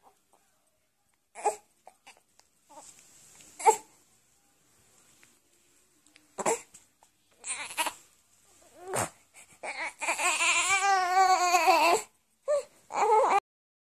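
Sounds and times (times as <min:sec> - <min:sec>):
newborn baby crying: 0:01.3 - 0:02.9, 0:03.6 - 0:03.9, 0:06.4 - 0:06.7, 0:07.4 - 0:08.0, 0:08.7 - 0:13.4.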